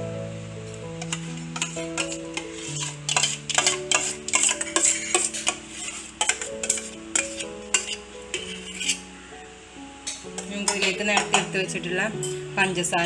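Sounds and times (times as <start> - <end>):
instrumental music: 0.0 - 13.0
kitchen utensils tapping and clinking: 1.0 - 9.0, 10.0 - 11.6.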